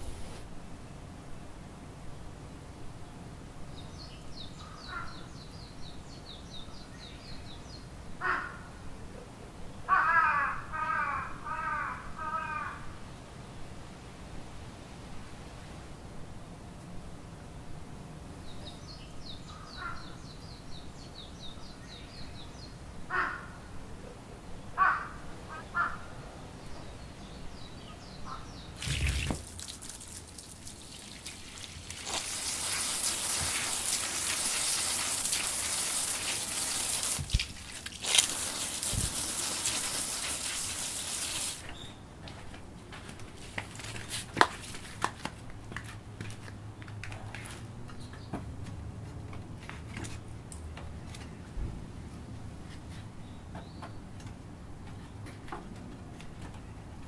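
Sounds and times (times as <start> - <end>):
water spraying from hose: 28.8 - 41.7.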